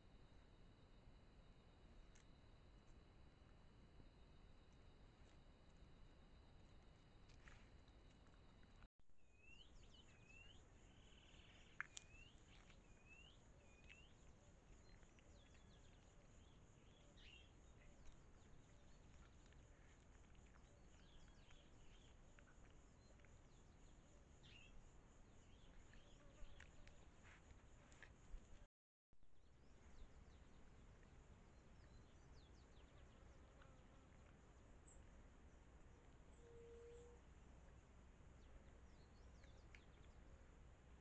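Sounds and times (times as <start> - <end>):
bird chirping: 9.2 - 24.8.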